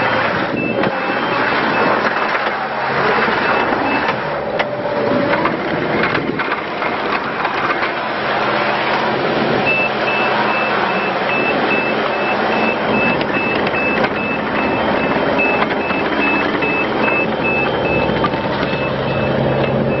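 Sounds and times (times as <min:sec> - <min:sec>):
reversing alarm beeping: 0:00.0 - 0:02.3, 0:02.9 - 0:04.9, 0:09.6 - 0:20.0
diesel engine running: 0:00.0 - 0:20.0.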